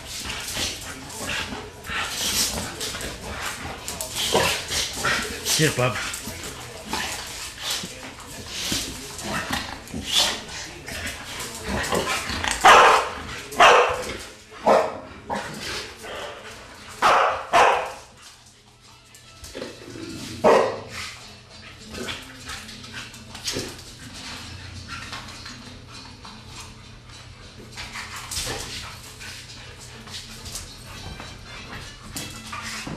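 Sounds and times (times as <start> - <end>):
dog barking: 12.6 - 14.0, 14.6 - 15.0, 17.0 - 18.0, 20.4 - 20.9.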